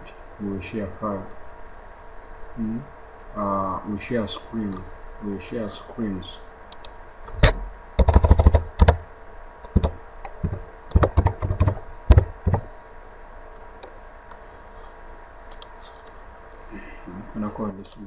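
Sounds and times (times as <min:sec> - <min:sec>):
faint steady hum: 0:00.0 - 0:18.0
keyboard keys tapping: 0:08.0 - 0:09.0, 0:09.7 - 0:12.7.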